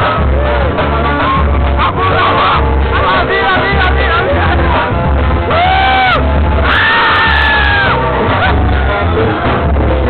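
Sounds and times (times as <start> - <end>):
heavy drum beat: 0.0 - 10.0
long held shout: 5.5 - 8.8.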